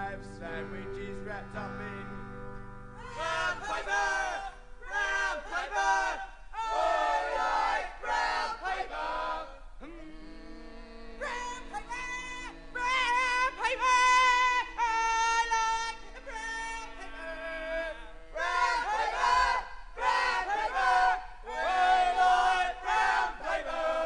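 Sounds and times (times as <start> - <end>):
sustained chord: 0.0 - 5.3
singer holding wavering notes: 0.0 - 5.5, 9.8 - 18.9.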